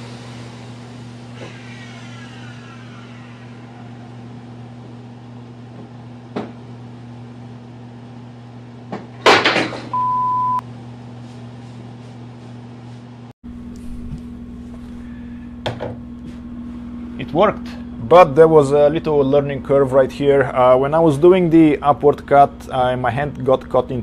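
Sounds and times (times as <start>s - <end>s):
motor winding down: 0.0s - 4.8s
low electrical hum: 0.0s - 24.0s
short electronic beep: 10.0s - 10.6s.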